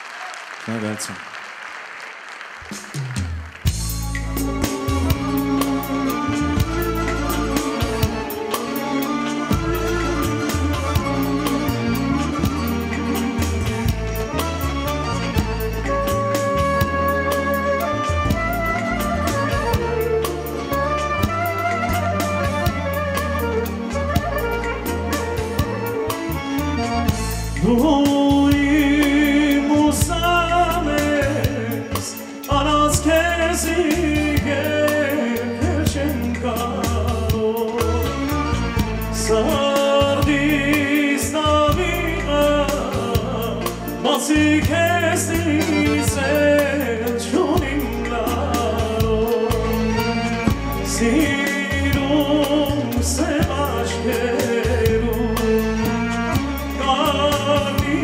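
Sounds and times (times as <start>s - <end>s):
accordion: 3.6s - 58.0s
keyboard: 3.6s - 58.0s
clarinet: 4.3s - 27.6s
man singing into a microphone: 27.6s - 58.0s.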